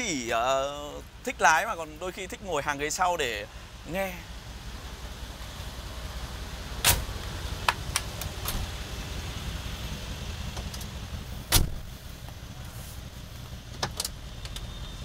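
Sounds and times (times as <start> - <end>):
car engine idling: 0.0 - 15.0
car door clunk: 10.5 - 11.9.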